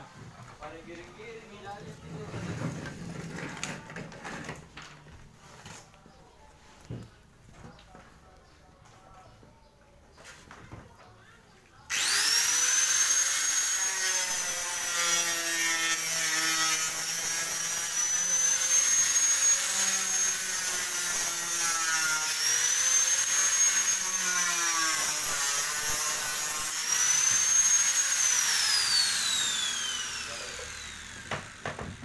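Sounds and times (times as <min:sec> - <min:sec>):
grinder motor spinning down: 0:11.9 - 0:21.6, 0:22.2 - 0:32.0
angle grinder cutting fiberglass: 0:11.9 - 0:32.0.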